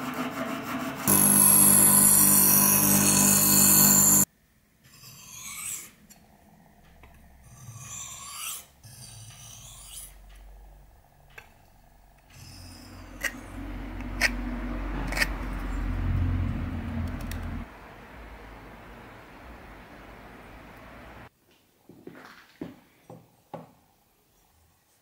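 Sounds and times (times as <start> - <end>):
bench grinder grinding knife blade: 0.0 - 4.3, 12.4 - 16.0.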